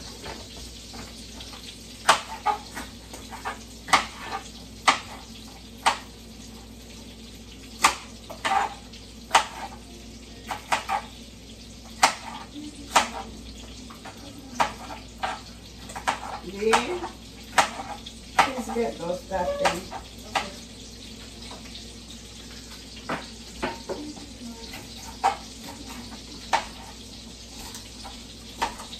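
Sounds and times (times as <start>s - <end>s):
sausages sizzling in skillet: 0.0s - 28.9s
knife chopping on cutting board: 2.0s - 5.2s, 7.8s - 9.8s, 12.0s - 13.3s, 14.6s - 18.7s.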